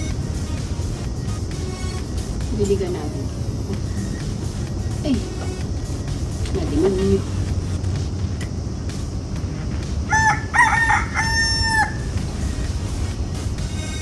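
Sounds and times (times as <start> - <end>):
rooster crowing: 10.1 - 12.2.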